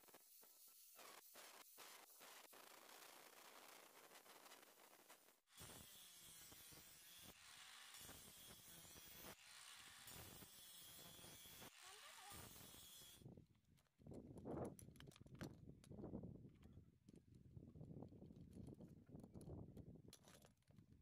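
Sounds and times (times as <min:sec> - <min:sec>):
angle grinder grinding steel: 0:05.5 - 0:13.2.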